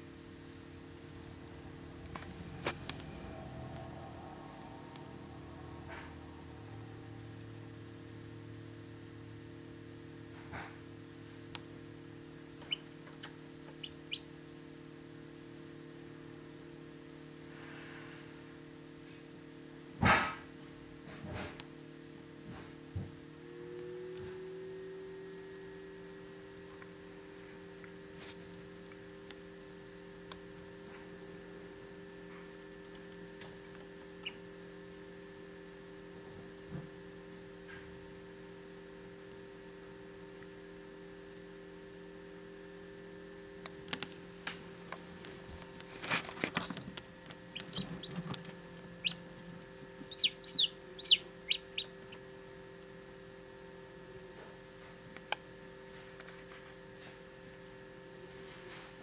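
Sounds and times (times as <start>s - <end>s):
incubator humming: 0.0s - 59.0s
chick peeping: 12.6s - 14.3s, 47.5s - 48.3s, 49.0s - 49.2s, 50.0s - 52.2s.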